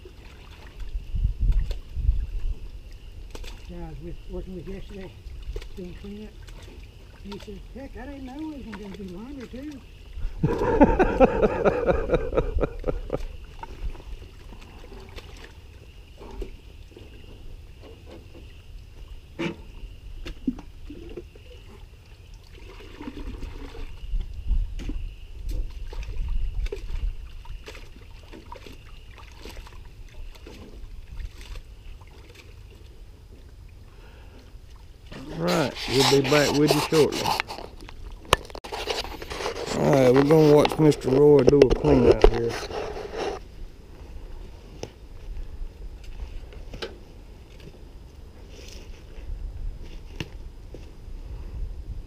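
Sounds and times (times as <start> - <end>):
water trickling: 0.0 - 43.5
person speaking: 35.1 - 37.6.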